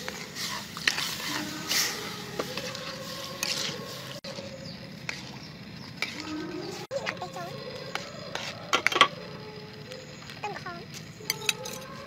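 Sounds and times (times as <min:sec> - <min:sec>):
ladle stirring thick sauce: 0:00.0 - 0:08.9
ladle scraping metal wok: 0:00.0 - 0:09.2
metal clinking on metal: 0:11.3 - 0:11.9.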